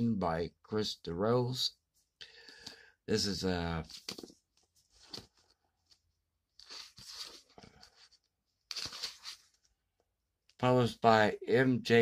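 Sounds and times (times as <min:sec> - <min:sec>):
book pages rustling: 0:03.8 - 0:09.8.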